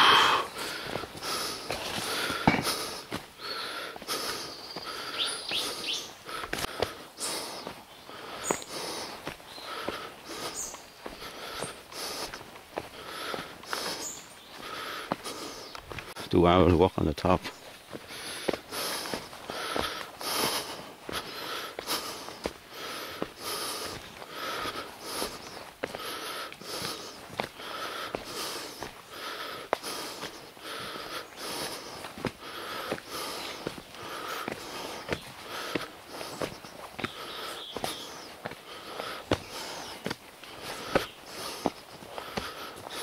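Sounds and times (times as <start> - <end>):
person breathing hard: 0.0 - 16.3, 17.9 - 43.0
bird chirping: 4.3 - 6.2, 7.2 - 11.0, 13.7 - 15.9, 34.7 - 40.1.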